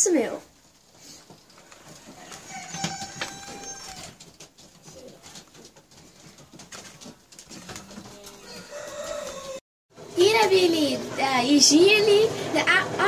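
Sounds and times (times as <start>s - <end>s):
clicks and rustles: 0.7s - 9.6s.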